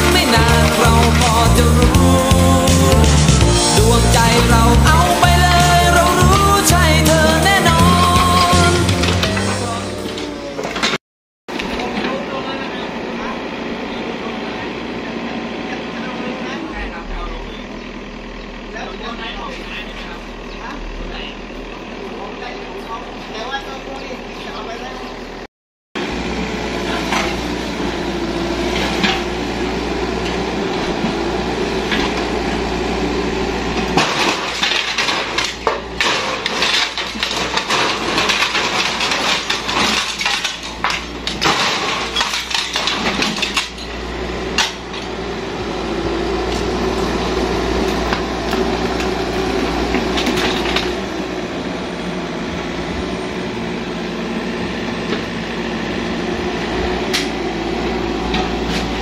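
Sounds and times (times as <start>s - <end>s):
wood and roofing crashing: 0.0s - 11.0s, 33.3s - 45.2s, 46.4s - 51.2s
diesel engine running: 0.0s - 59.0s.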